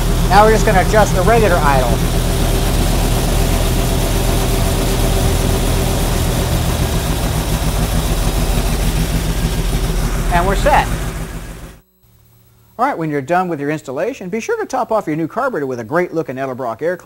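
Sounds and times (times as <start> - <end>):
car engine idling: 0.0 - 11.8.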